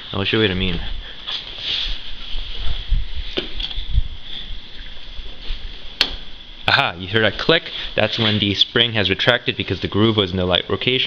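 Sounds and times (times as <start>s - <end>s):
scraping and handling: 7.6s - 8.6s.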